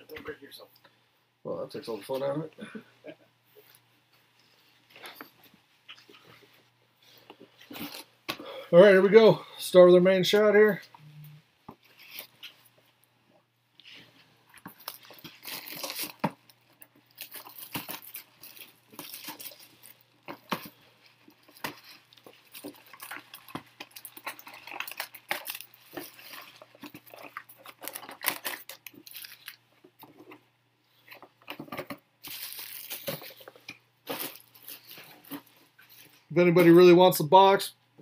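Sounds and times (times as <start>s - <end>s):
wrappers torn and crinkled: 11.8s - 12.5s, 14.5s - 30.3s, 32.2s - 35.5s.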